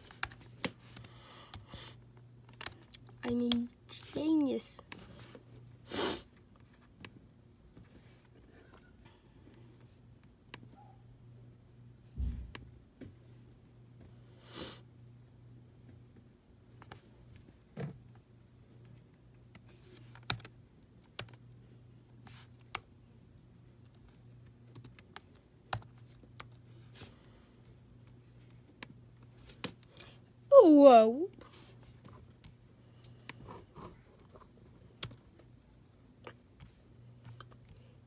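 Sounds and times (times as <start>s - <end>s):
laptop keyboard typing: 0.0s - 1.8s, 2.5s - 3.7s, 18.7s - 21.6s, 22.3s - 22.9s, 23.8s - 26.7s, 34.9s - 35.4s
faint steady hum: 0.0s - 38.0s.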